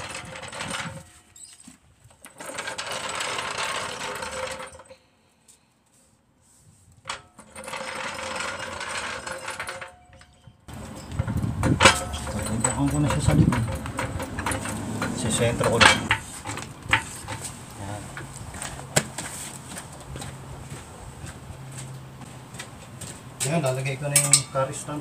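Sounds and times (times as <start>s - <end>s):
metal floor jack rattling and clicking: 0.0s - 1.1s, 2.2s - 4.9s, 7.1s - 17.5s.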